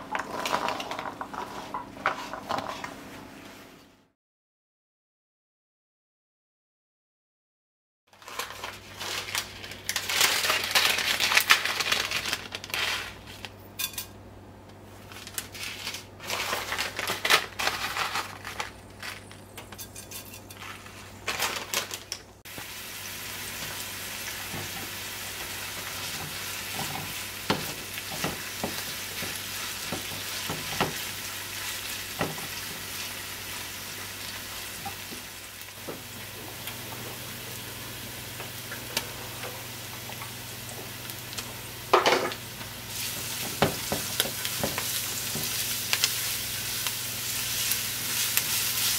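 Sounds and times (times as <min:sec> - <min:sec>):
hot oil sizzling and crackling: 0:08.1 - 0:14.0, 0:22.4 - 0:48.9.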